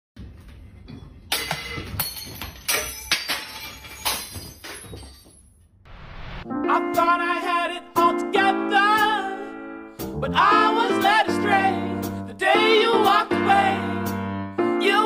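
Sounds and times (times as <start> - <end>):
objects crashing from shelf: 1.3 - 5.5
music: 6.4 - 15.0.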